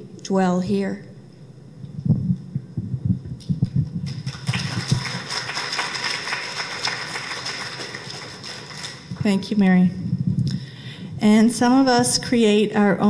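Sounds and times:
microphone handling thumps: 2.0s - 4.2s
audience applause: 4.1s - 9.1s.

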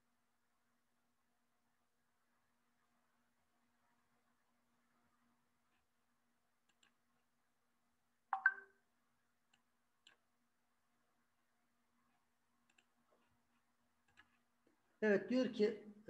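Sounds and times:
faint low hum: 0.0s - 16.0s
faint scattered clicks: 6.6s - 7.2s, 9.4s - 10.3s, 12.1s - 14.8s.

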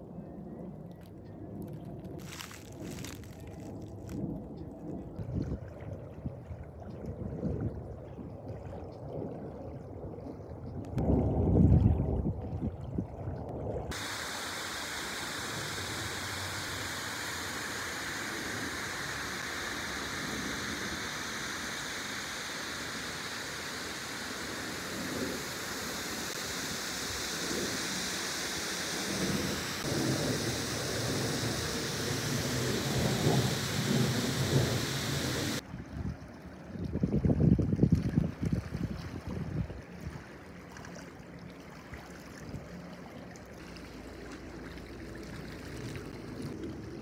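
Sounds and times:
wind rumble on microphone: 0.0s - 14.0s, 29.0s - 40.4s
water rushing: 13.9s - 35.6s.

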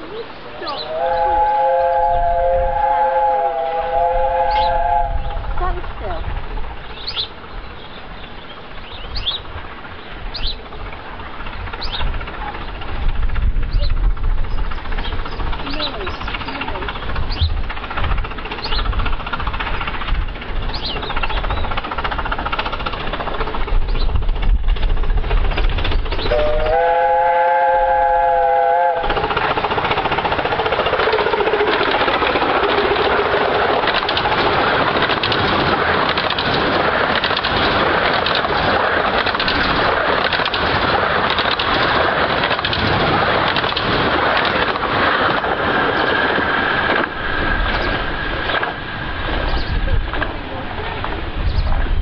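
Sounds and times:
rush of steam exhaust: 0.0s - 6.9s, 26.2s - 35.0s
steam locomotive chime whistle: 0.7s - 5.5s, 26.3s - 29.1s
wheels clattering on track: 4.0s - 52.0s.

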